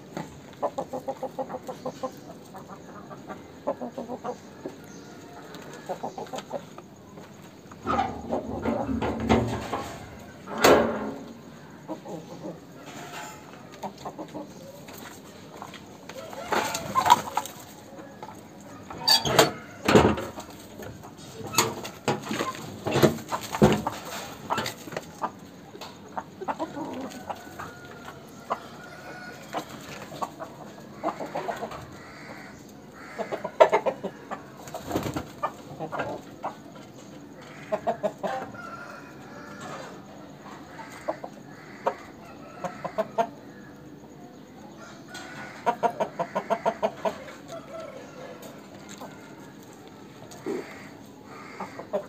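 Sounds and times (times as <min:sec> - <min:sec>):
roosters clucking: 0:00.0 - 0:52.0
rooster crowing: 0:18.0 - 0:20.2, 0:26.8 - 0:29.7, 0:37.5 - 0:40.1, 0:40.7 - 0:43.6, 0:44.8 - 0:49.6.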